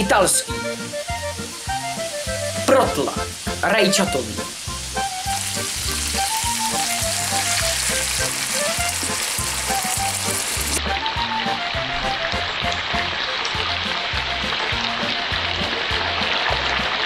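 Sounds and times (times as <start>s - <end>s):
bouncy background music: 0.0s - 17.0s
meat sizzling in a pan: 0.3s - 11.2s, 12.4s - 17.0s
sauce pouring into pan: 4.4s - 10.8s.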